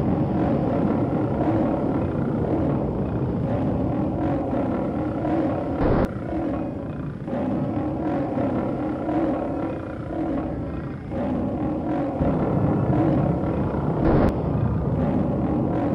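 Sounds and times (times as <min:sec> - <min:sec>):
deep monster roar: 0:00.0 - 0:15.9.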